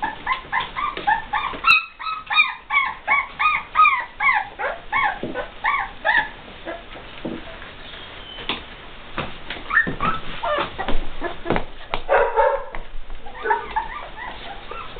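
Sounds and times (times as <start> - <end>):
puppies whimpering: 0.0 - 7.0, 9.7 - 11.6, 13.2 - 14.9.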